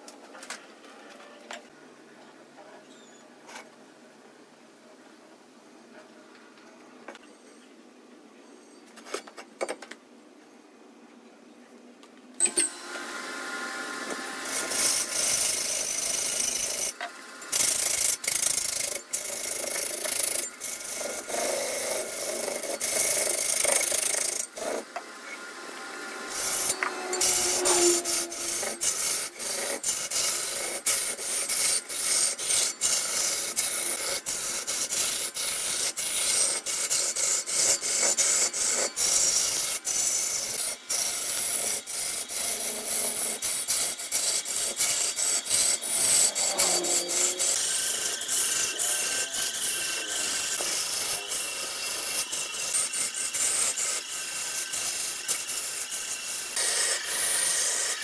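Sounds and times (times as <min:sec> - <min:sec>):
chisel scraping spinning wood: 0:14.1 - 0:58.0.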